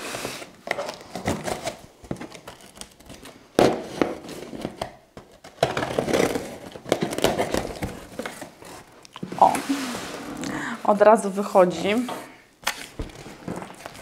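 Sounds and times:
packing tape tearing: 0:00.3 - 0:09.2.

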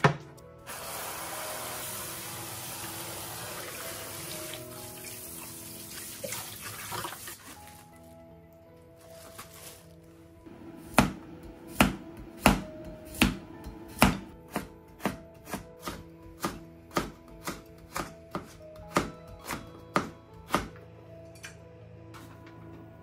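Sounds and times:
knife chopping on cutting board: 0:10.8 - 0:20.7.

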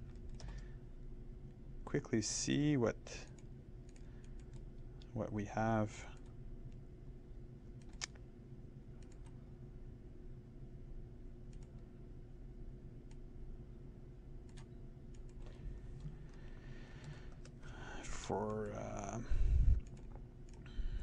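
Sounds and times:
faint low hum: 0:00.0 - 0:21.0
computer mouse clicks: 0:00.1 - 0:00.6, 0:03.3 - 0:05.1, 0:07.8 - 0:08.2, 0:09.0 - 0:09.4, 0:11.5 - 0:11.8, 0:14.4 - 0:16.4, 0:19.8 - 0:20.7.

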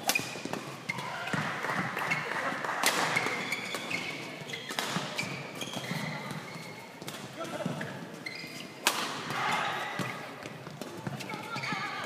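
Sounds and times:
racket striking shuttlecock: 0:02.8 - 0:04.0, 0:08.8 - 0:10.2
shoe squeaks on court: 0:03.0 - 0:07.0, 0:07.6 - 0:08.8, 0:11.0 - 0:12.0.

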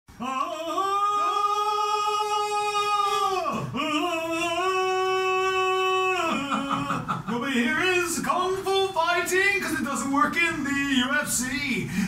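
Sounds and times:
person singing long notes: 0:00.2 - 0:07.1.

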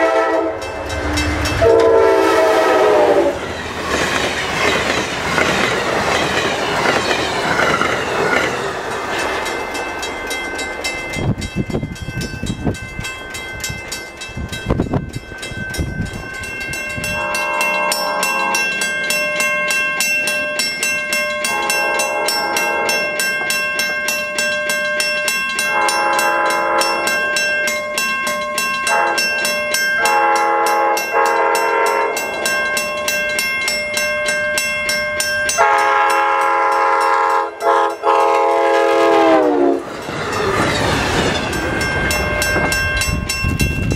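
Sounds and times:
train horn blasts: 0:00.0 - 0:03.5, 0:17.1 - 0:18.7, 0:21.4 - 0:23.1, 0:25.7 - 0:27.1, 0:28.9 - 0:29.3, 0:30.0 - 0:32.2, 0:35.5 - 0:39.9
train rushing past: 0:00.0 - 0:18.8, 0:30.0 - 0:43.9.

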